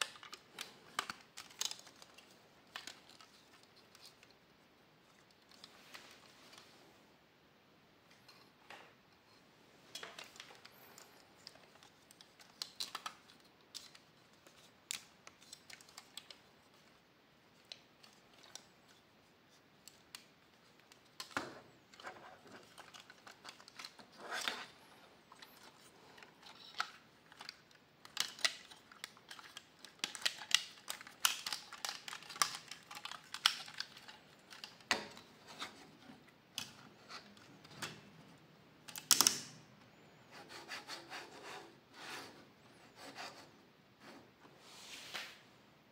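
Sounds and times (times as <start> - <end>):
plastic toy parts clicking and snapping: 0.0 - 4.4, 9.9 - 17.0, 19.8 - 24.7, 25.3 - 35.8, 36.5 - 38.0, 38.8 - 39.6.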